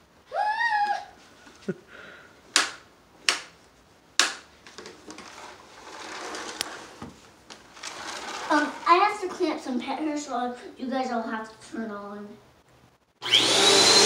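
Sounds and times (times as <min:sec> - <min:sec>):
sharp plastic clacks: 0:02.5 - 0:03.6, 0:04.2 - 0:05.3
soft rustle: 0:05.0 - 0:09.5.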